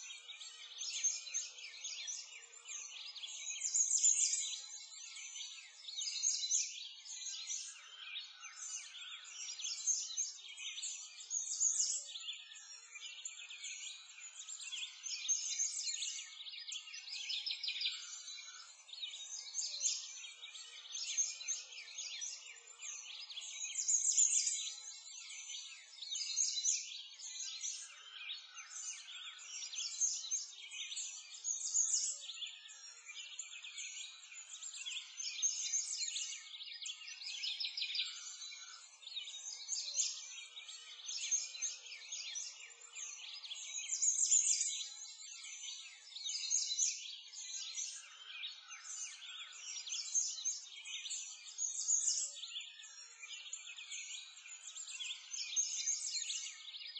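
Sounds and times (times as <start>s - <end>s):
small birds chirping and singing: 0.0s - 56.9s.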